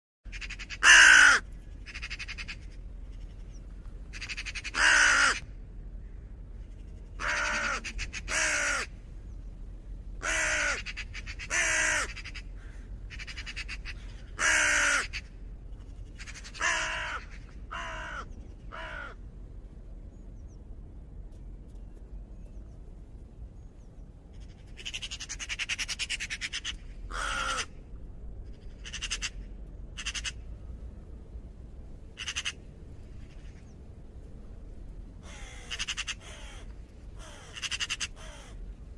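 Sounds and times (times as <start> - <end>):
raven calling: 0.3 - 9.0, 10.2 - 19.2, 24.3 - 30.5, 32.1 - 33.8, 35.2 - 38.7.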